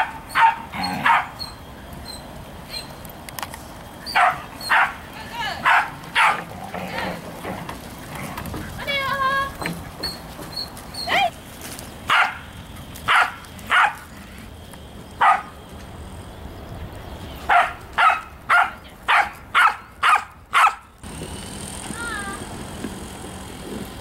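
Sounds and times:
dog barking: 0:00.0 - 0:01.4, 0:04.1 - 0:05.0, 0:05.6 - 0:06.4, 0:12.1 - 0:12.4, 0:13.1 - 0:14.0, 0:15.2 - 0:15.5, 0:17.5 - 0:20.8.

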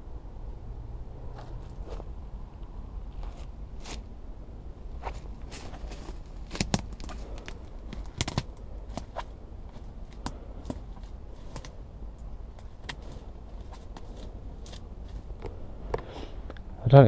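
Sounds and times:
low steady rumble: 0:00.0 - 0:17.0
twigs crackling underfoot: 0:01.3 - 0:04.2, 0:04.8 - 0:16.4
footsteps through long grass: 0:04.9 - 0:08.0.

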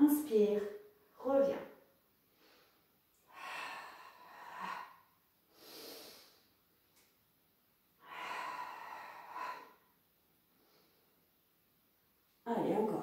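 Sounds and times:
woman breathing heavily: 0:02.3 - 0:06.6, 0:08.0 - 0:11.2.

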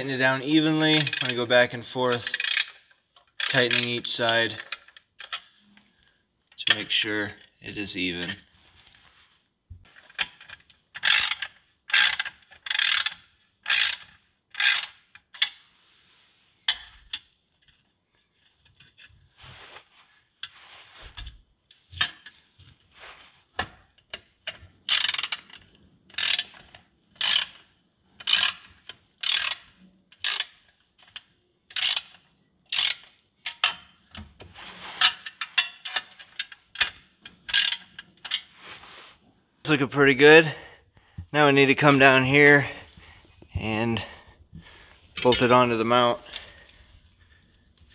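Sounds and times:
socket ratchet clicking: 0:11.0 - 0:15.6, 0:24.9 - 0:26.6, 0:27.2 - 0:27.6, 0:28.2 - 0:33.9.

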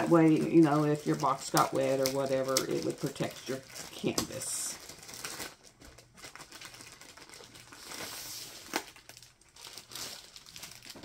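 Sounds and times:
plastic covering crinkling: 0:00.0 - 0:11.0.

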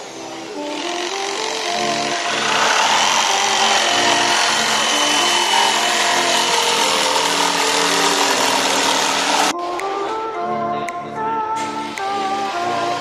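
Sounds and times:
jigsaw sawing through wood: 0:00.0 - 0:09.5.

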